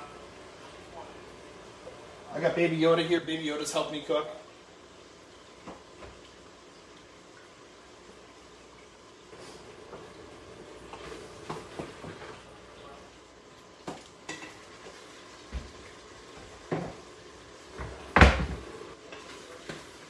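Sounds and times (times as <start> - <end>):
cupboard door shutting: 17.8 - 18.7.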